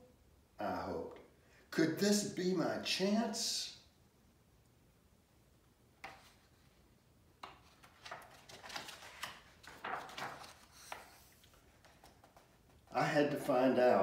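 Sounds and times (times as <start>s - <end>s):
paper rustling and flapping: 7.4s - 12.9s.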